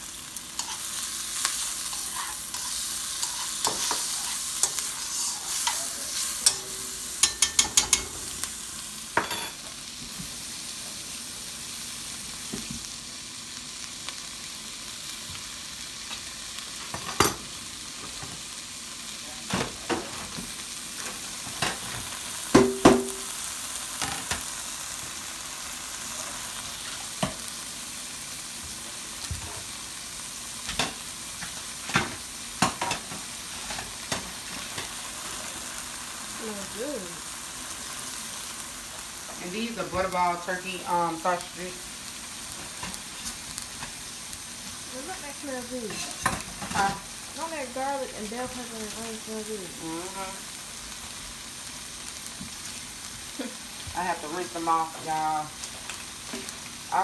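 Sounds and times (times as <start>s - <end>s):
vegetables sizzling in a wok: 0.0s - 57.0s
spatula stirring: 0.6s - 8.2s.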